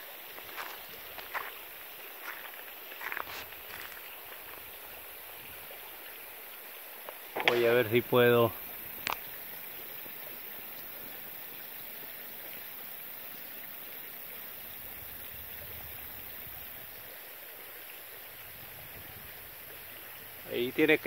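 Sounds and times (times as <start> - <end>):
rushing outdoor background noise: 0.0 - 10.7.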